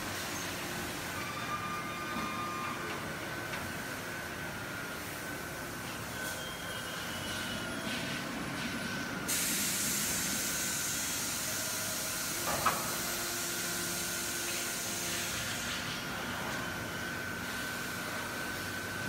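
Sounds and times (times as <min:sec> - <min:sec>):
machinery hum with high whine: 0:00.0 - 0:19.0
loud hiss of air: 0:07.4 - 0:16.2.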